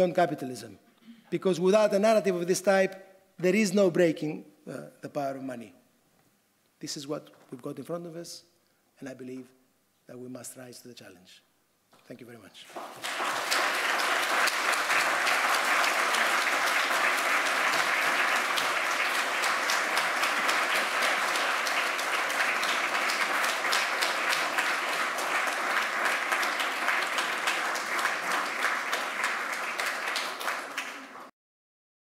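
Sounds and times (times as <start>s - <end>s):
audience applauding: 12.7s - 31.3s.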